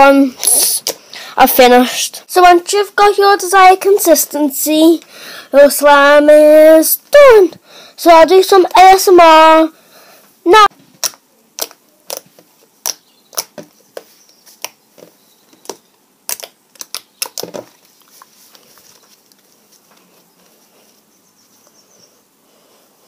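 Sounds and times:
slime squishing: 11.0 - 13.7, 15.6 - 18.8.

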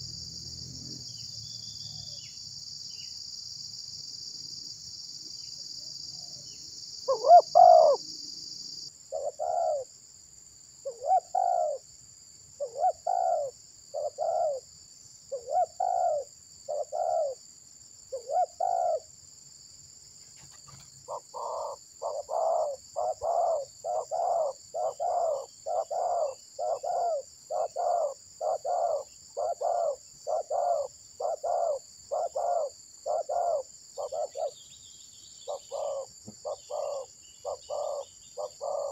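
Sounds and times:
high insect drone: 0.0 - 38.9
doves cooing: 7.1 - 8.0, 9.1 - 9.9, 10.9 - 11.8, 12.6 - 14.6, 15.4 - 17.4, 18.2 - 19.0, 20.7 - 34.6, 35.5 - 38.9.

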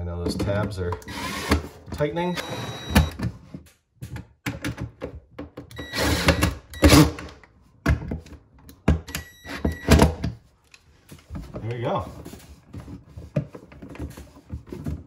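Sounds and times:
cordless drill motor whining: 1.0 - 1.6, 2.2 - 3.2.

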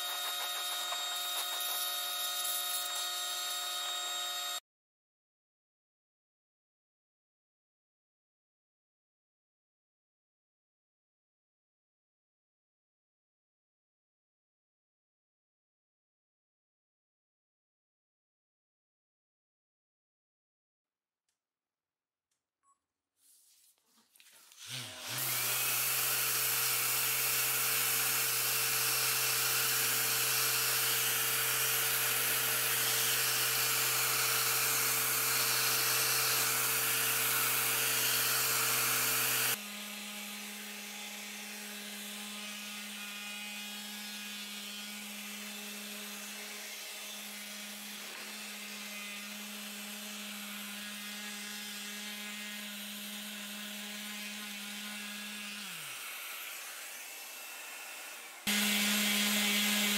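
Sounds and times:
orbital sander sanding metal: 0.0 - 4.6, 24.6 - 59.9.

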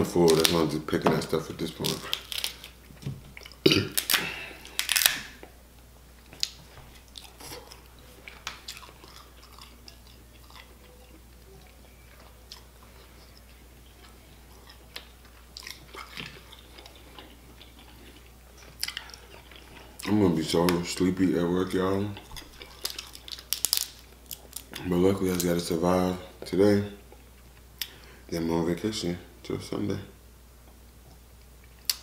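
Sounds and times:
crab shell cracking: 1.7 - 2.8, 3.5 - 5.4, 22.4 - 24.8.

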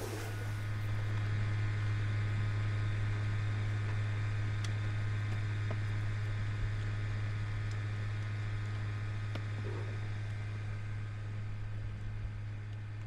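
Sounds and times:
faint hiss: 0.0 - 0.8
low electrical hum: 0.0 - 13.0.

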